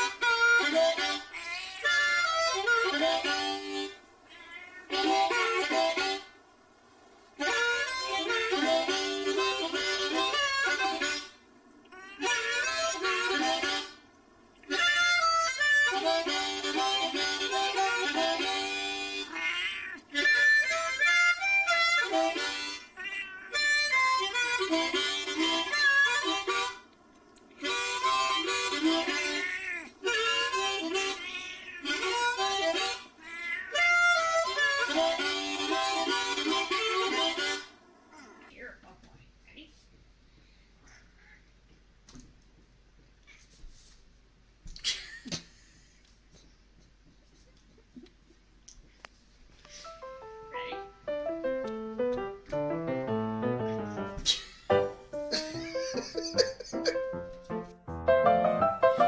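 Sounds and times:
harmonica playing: 0.0 - 4.1, 4.9 - 6.4, 7.4 - 11.4, 12.2 - 14.0, 14.7 - 19.4, 20.1 - 26.9, 27.6 - 37.8, 49.7 - 59.0.

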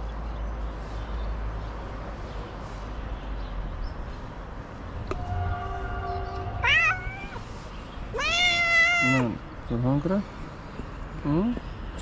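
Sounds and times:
steady tone: 4.9 - 7.6
cat meowing: 6.3 - 7.5, 8.1 - 9.5.

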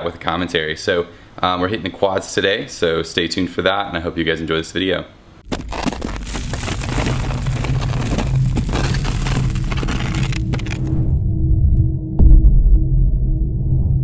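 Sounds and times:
crackling and breaking debris: 5.4 - 11.0
low rumble: 6.1 - 14.0.

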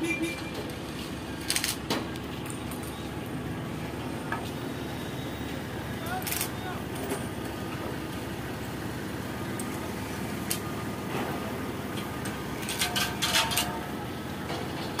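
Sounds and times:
car engine and road noise: 0.0 - 15.0
sharp clanks: 12.6 - 13.9.

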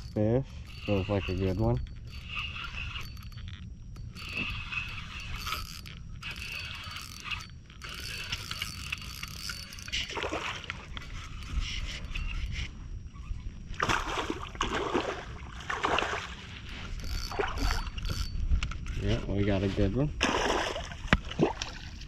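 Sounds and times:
low steady rumble: 0.0 - 22.0
water splashing: 13.8 - 16.4.

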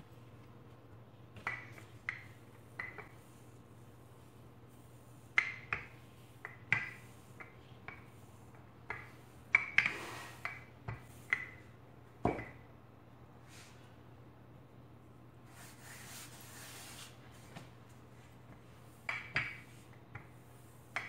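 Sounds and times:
rolling pin knocking on worktop: 12.2 - 12.6.

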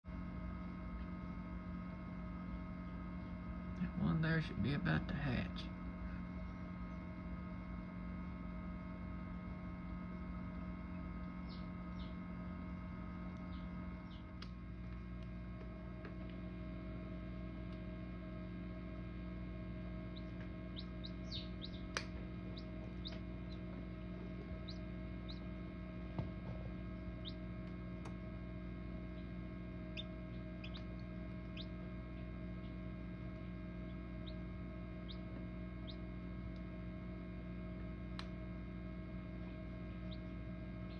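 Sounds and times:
incubator electrical hum: 0.0 - 40.9
chicks peeping: 10.1 - 12.7, 13.3 - 14.4, 19.6 - 28.3, 28.9 - 36.7, 39.4 - 40.9.

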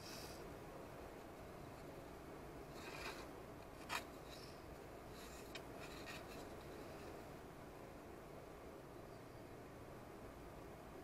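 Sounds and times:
stick scraping epoxy: 2.7 - 4.5, 5.1 - 7.1.

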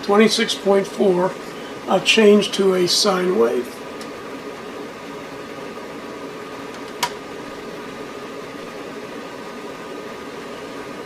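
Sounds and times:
test equipment running: 0.0 - 11.0.

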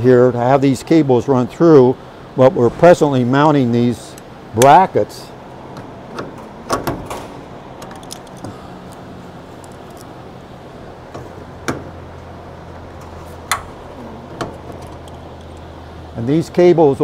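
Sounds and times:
low hum: 1.9 - 6.6.

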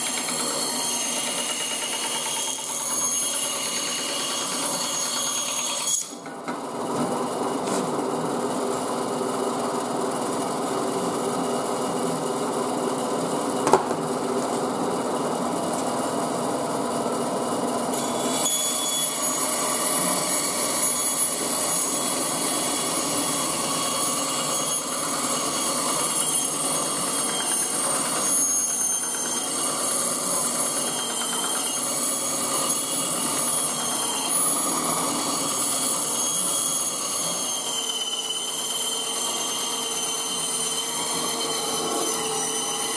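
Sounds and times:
band saw running: 0.0 - 6.3, 7.2 - 42.9
saw blade cutting with whine: 0.0 - 6.3, 15.5 - 42.9.

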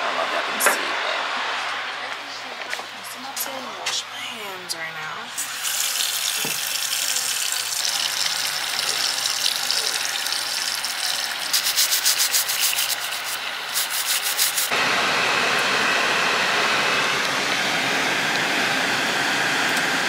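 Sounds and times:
nail file rasping on nails: 11.5 - 14.7.

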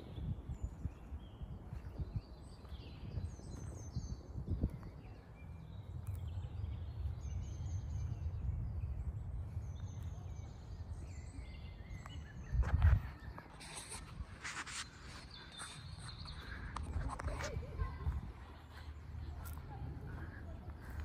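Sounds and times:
small birds chirping: 0.0 - 21.0
steady low rumble: 3.0 - 13.2.

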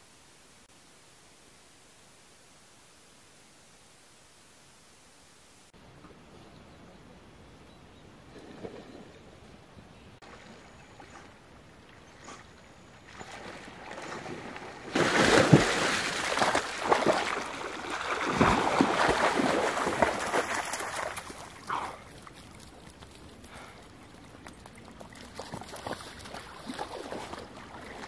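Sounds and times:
water splashing from swimming: 13.1 - 22.6, 25.0 - 28.0.

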